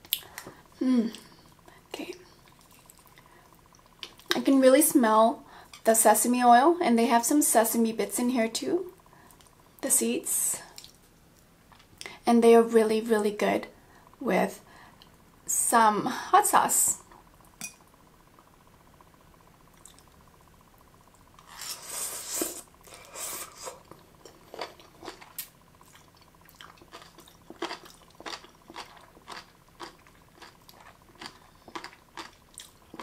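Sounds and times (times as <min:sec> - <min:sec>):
crunchy chewing: 0:21.4 - 0:33.0.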